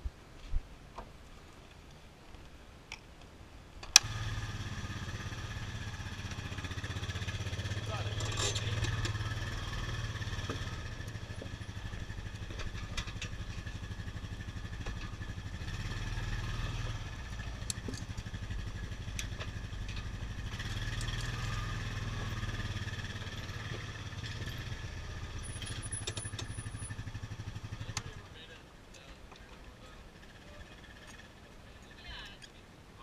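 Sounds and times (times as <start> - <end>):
small vehicle engine running: 4.0 - 28.3
clicks and rattles: 8.1 - 9.2.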